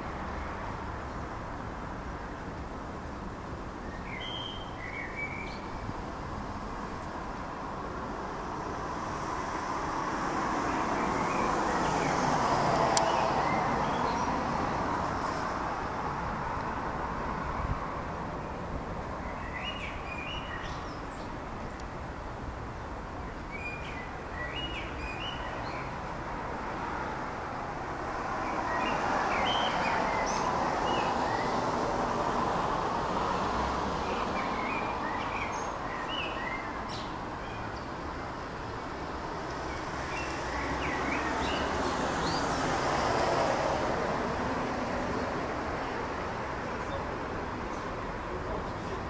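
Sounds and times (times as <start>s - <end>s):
small birds chirping: 19.2s - 21.9s, 23.4s - 26.0s, 34.1s - 38.4s, 39.5s - 42.7s.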